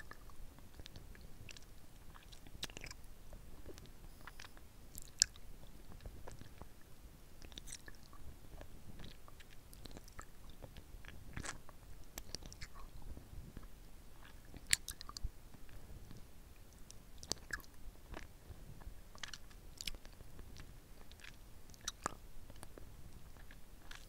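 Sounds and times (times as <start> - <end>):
lollipop sucking and licking: 17.2 - 18.3, 19.2 - 22.7.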